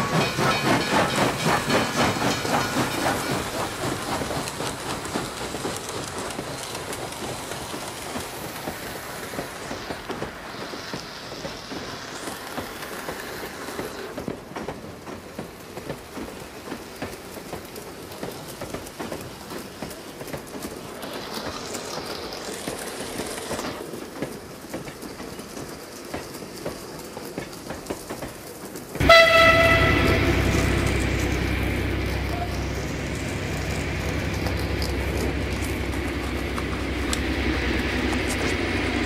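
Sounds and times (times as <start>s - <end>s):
hiss: 0.0s - 39.0s
train rumbling on track: 0.0s - 39.0s.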